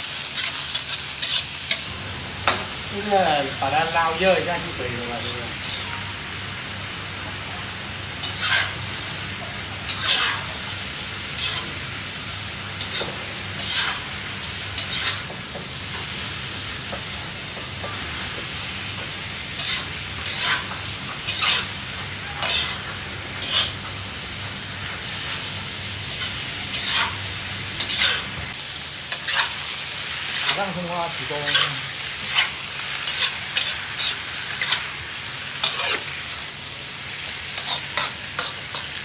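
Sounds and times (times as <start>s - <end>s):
food sizzling: 0.0s - 39.0s
metal spatula scraping a wok: 5.6s - 6.0s, 8.2s - 8.8s, 9.8s - 10.6s, 11.4s - 11.8s, 12.8s - 15.3s, 19.6s - 23.8s, 26.1s - 27.2s, 27.8s - 28.3s, 29.1s - 29.6s, 30.3s - 35.0s, 35.6s - 36.2s, 37.5s - 39.0s.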